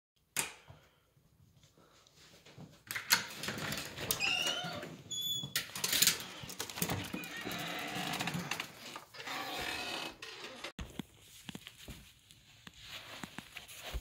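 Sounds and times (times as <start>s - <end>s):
door squeaking open: 4.0s - 10.8s.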